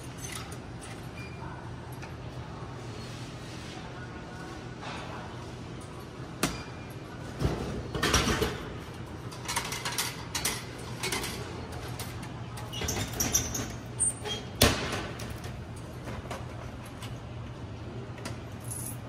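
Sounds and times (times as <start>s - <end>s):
vending machine clunks and knocks: 14.5s - 15.4s.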